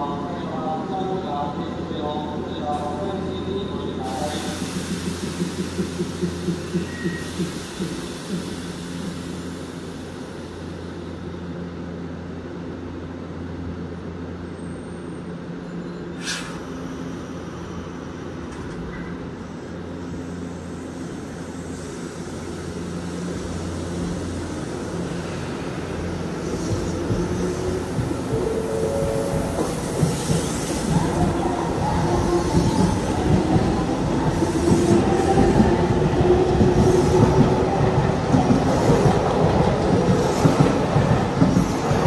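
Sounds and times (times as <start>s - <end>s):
electric train equipment humming: 16.6s - 42.0s
rising train motor tone: 24.1s - 42.0s.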